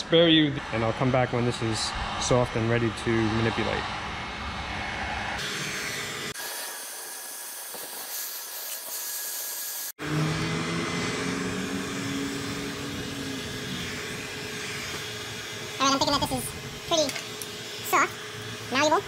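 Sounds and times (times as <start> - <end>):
heat gun blowing: 5.4 - 18.8.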